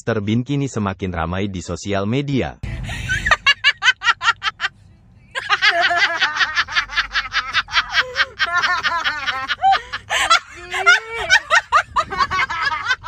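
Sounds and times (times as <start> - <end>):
young woman laughing: 2.7 - 4.7, 5.3 - 13.0.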